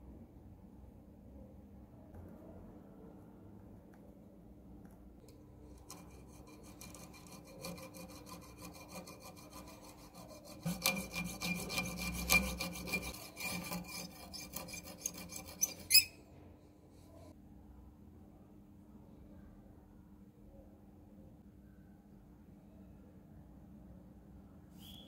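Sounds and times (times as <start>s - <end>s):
hacksaw cutting wood: 5.9s - 16.1s.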